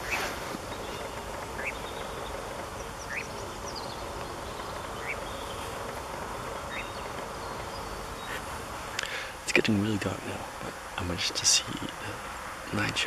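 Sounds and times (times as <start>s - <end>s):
nightjar rising calls: 0.0s - 9.5s
steady background hiss: 0.0s - 13.0s.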